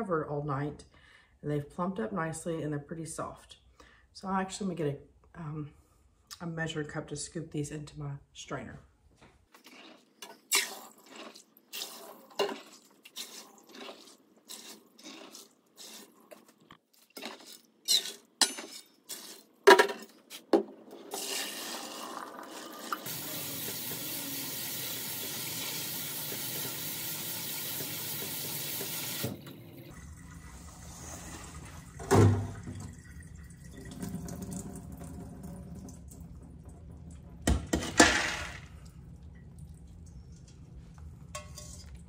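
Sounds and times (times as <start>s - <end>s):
cup scraping metal bowl: 21.1s - 23.1s
sink sprayer hissing: 21.1s - 29.9s
water running in sink: 21.1s - 37.6s.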